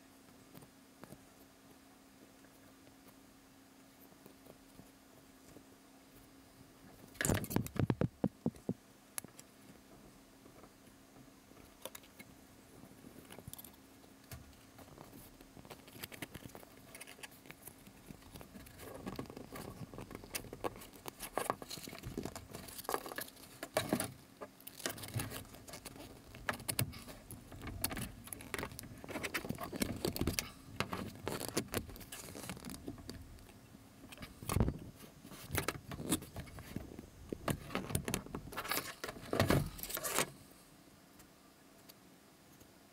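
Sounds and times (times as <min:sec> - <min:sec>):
wire clicking and scraping through cork: 0:07.1 - 0:09.5, 0:13.1 - 0:40.3.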